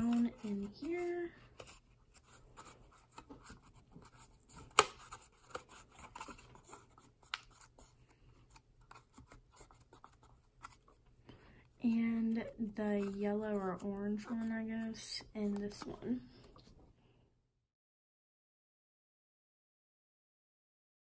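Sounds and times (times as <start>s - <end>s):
plastic tray rubbing and crackling: 0.0s - 7.7s.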